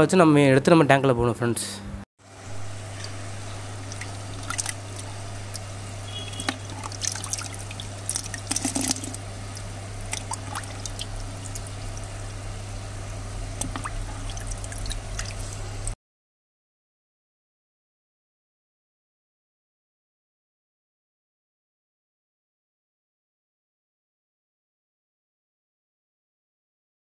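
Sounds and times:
low hum: 1.8s - 16.0s
water sloshing in a tub: 2.4s - 16.0s
water splashes: 2.5s - 12.4s, 13.0s - 16.0s.

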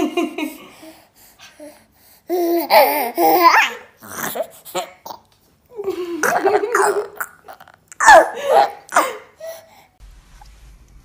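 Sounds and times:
baby giggling: 2.3s - 9.6s.

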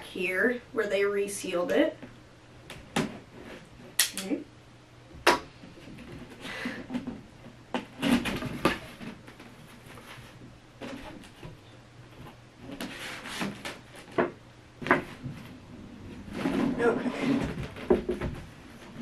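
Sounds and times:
rustling: 5.6s - 19.0s
cardboard sliding and scraping: 12.7s - 14.2s, 14.8s - 19.0s.

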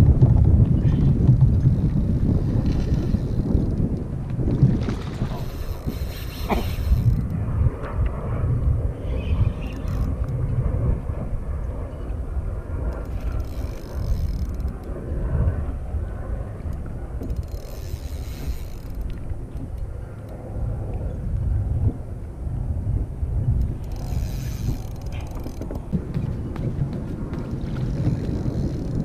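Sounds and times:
wind rumbling on microphone: 0.0s - 29.0s
fishing reel cranking: 1.6s - 4.0s, 5.2s - 7.4s, 9.6s - 10.3s, 13.0s - 14.9s, 16.7s - 19.8s, 23.6s - 25.8s, 27.4s - 29.0s.

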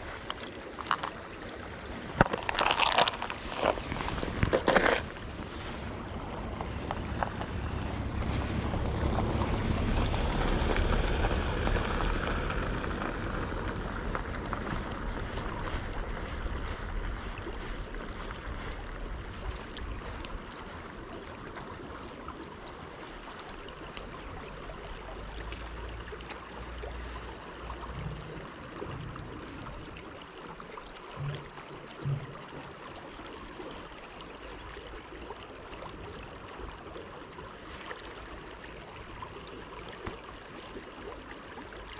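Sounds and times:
wind buffeting microphone: 3.2s - 21.8s
soft low knocks: 31.2s - 32.5s.

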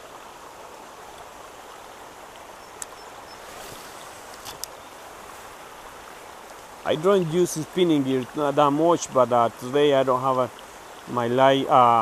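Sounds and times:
light rain on pond and plants: 0.0s - 12.0s.

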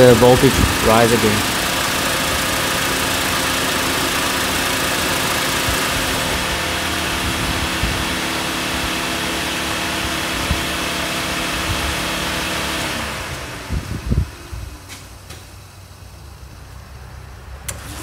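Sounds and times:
car engine idling: 0.0s - 13.7s.

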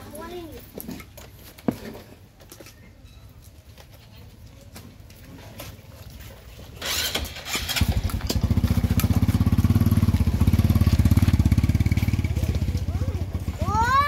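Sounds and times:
motorcycle engine starting and idling: 6.6s - 14.0s.

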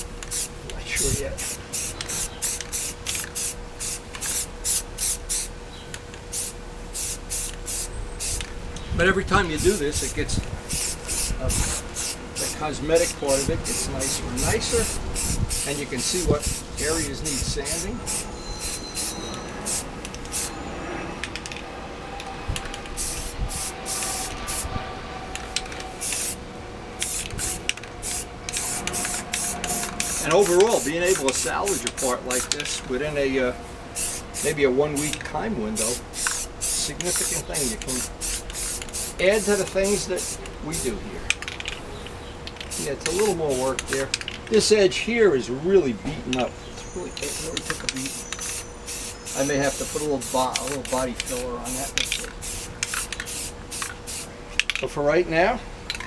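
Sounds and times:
aerosol can spraying in bursts: 0.0s - 5.5s, 6.3s - 8.5s, 10.7s - 20.5s, 23.0s - 24.6s, 25.5s - 26.4s, 27.0s - 32.8s, 34.0s - 35.1s, 35.7s - 40.9s, 47.2s - 54.3s.

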